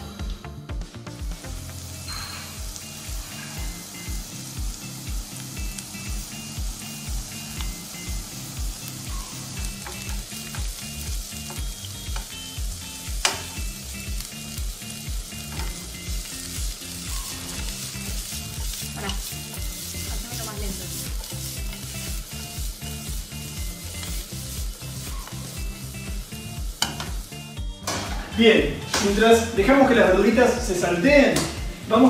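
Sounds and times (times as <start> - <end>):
background music with steady beat: 0.0 - 32.0
vegetables sizzling in a frying pan: 1.3 - 32.0
vegetables tossed in pan: 15.3 - 26.1.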